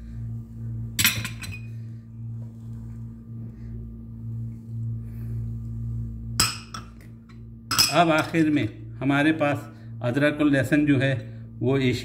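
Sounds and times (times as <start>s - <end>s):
steady low hum: 0.0s - 12.0s
dishes clinking together: 7.7s - 8.1s.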